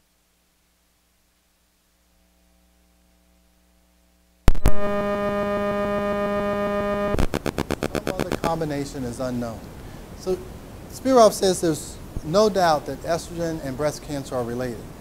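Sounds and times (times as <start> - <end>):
electrical mains hum: 0.0 - 15.0
sharp clicks: 7.2 - 8.6.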